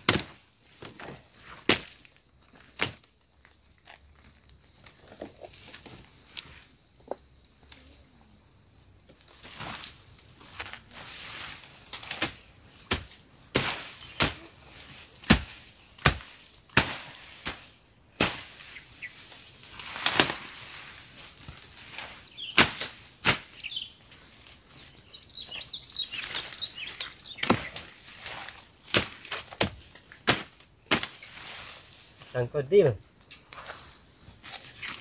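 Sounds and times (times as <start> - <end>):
machete chopping undergrowth: 0.0 - 2.1, 2.7 - 3.1, 11.9 - 14.4, 15.2 - 18.6, 19.8 - 20.7, 21.8 - 23.6, 27.4 - 31.5
insects droning: 0.0 - 35.0.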